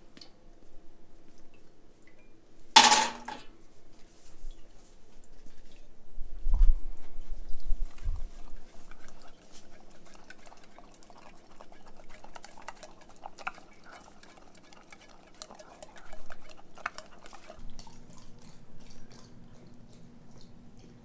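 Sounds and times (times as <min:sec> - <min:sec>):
dog licking a tin can: 0:07.8 - 0:21.0.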